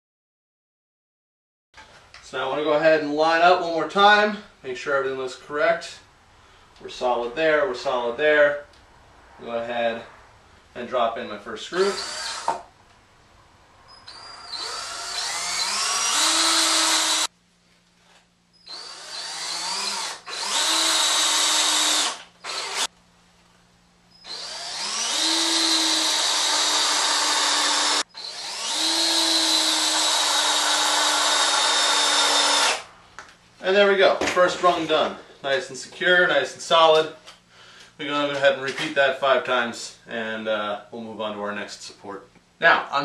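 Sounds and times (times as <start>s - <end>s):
power drill driving screws: 11.8s - 12.6s, 14.0s - 17.3s, 18.6s - 22.9s, 24.2s - 32.8s.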